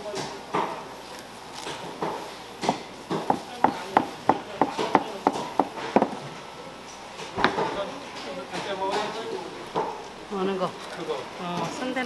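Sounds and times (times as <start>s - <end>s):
knife chopping on cutting board: 1.6s - 6.2s.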